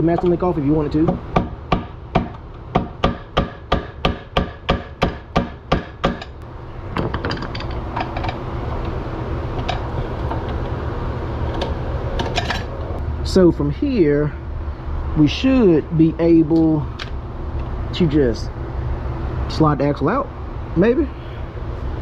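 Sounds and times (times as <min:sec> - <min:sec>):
hammer tapping metal punch: 0:00.1 - 0:06.4.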